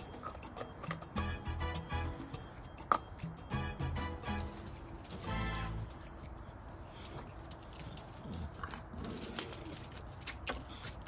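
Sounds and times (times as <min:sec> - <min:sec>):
background music with beat: 0:00.0 - 0:04.7.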